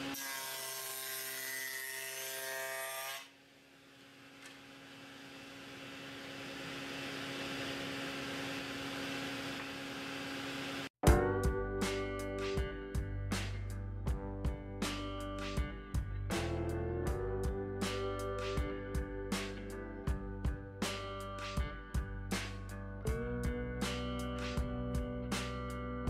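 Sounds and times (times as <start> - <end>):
table saw cutting wood: 0.0 - 10.9
plucked guitar music: 11.0 - 26.0.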